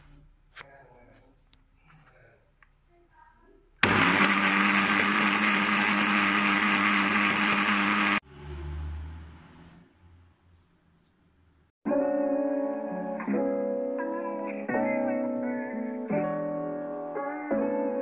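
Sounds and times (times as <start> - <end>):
electric blender running: 3.8 - 8.2.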